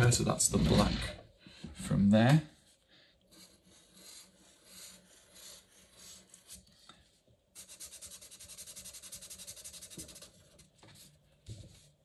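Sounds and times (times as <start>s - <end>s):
pen scratching on paper: 3.3s - 6.6s, 7.6s - 10.6s.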